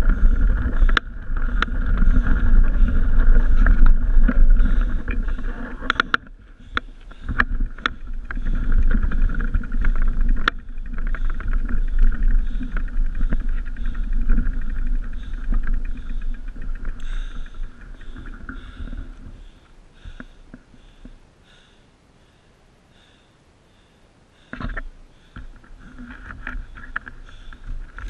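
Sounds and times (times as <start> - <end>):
wind and tyre rumble: 0.0 - 20.8
bike rattling over ground: 0.0 - 21.1.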